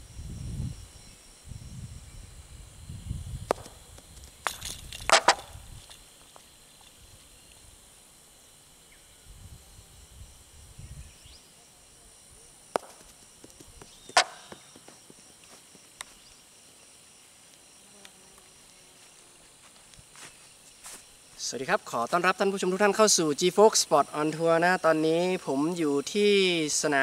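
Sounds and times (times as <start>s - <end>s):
ball knocking wooden pins: 12.8s - 15.0s.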